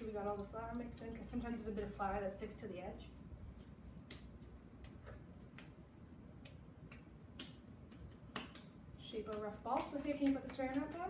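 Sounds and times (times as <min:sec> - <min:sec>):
hands shaping cookie dough: 0:00.0 - 0:11.0.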